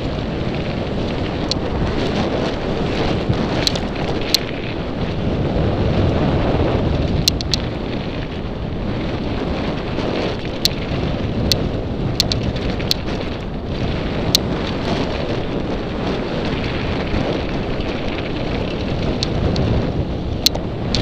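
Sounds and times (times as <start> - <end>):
bike tyres rumbling on dirt: 0.0 - 21.0
wind buffeting microphone: 0.0 - 21.0
sharp ticks: 1.4 - 1.6, 3.6 - 4.7, 7.2 - 7.7, 10.4 - 13.2, 14.2 - 14.5, 17.8 - 19.7, 20.4 - 21.0.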